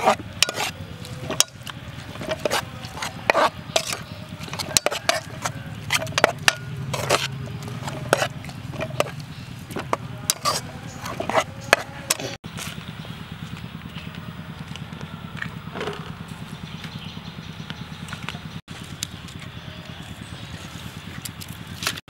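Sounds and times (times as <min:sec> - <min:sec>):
metal spoon scraping a pot: 0:00.0 - 0:12.4.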